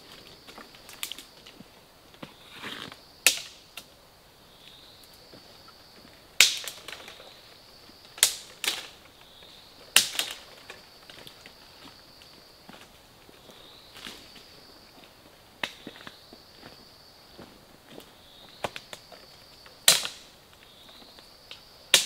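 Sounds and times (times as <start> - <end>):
twigs crackling: 0.0 - 3.9, 6.4 - 16.2, 18.6 - 20.9
branches snapping: 0.1 - 1.5, 6.4 - 7.3, 8.2 - 9.0, 9.9 - 11.4, 19.8 - 20.3.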